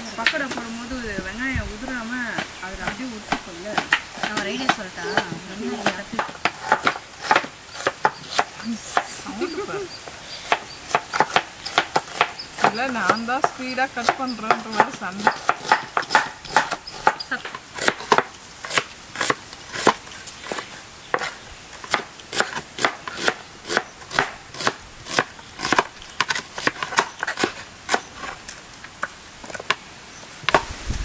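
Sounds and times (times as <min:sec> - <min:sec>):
knife chopping on cutting board: 0:02.4 - 0:09.0, 0:10.4 - 0:28.0.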